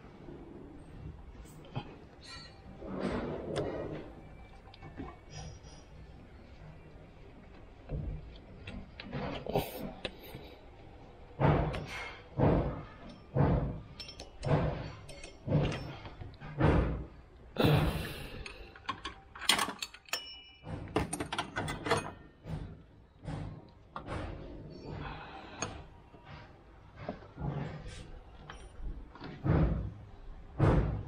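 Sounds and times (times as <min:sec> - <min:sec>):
spanner clinking on metal: 0:14.0 - 0:16.0, 0:18.7 - 0:22.2
dull thuds: 0:29.4 - 0:31.0.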